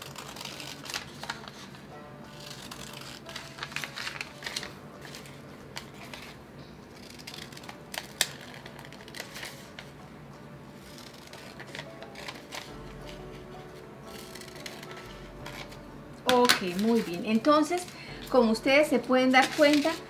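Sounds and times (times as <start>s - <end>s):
scissors snipping paper: 0.0s - 9.9s, 10.8s - 13.3s, 14.1s - 17.1s, 19.4s - 20.0s
paper rustling: 0.0s - 10.0s, 10.8s - 18.0s, 19.4s - 20.0s.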